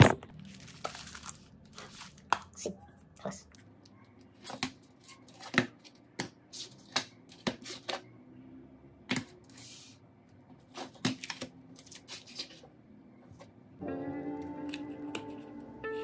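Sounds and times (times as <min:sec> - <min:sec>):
plastic bag rustling: 0:00.0 - 0:02.3.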